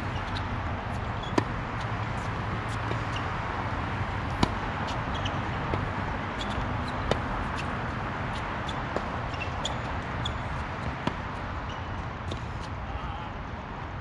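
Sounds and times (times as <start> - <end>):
tennis ball bouncing: 0.0 - 11.4
tennis ball struck by racquets: 4.2 - 7.7.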